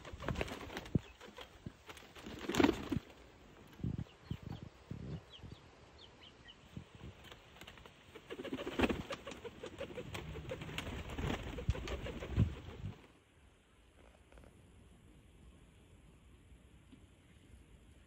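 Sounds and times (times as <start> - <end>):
wing flaps: 0.0 - 4.6, 7.1 - 13.2
pigeons cooing: 8.2 - 13.0.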